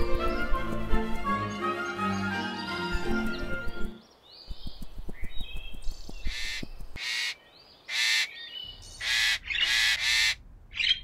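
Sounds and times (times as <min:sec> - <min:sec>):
harsh squawking bird calls: 0:05.2 - 0:11.0.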